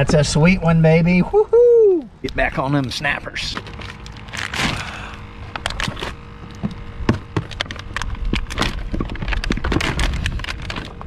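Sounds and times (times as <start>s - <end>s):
frozen bottles and ice crackling: 2.6s - 11.0s.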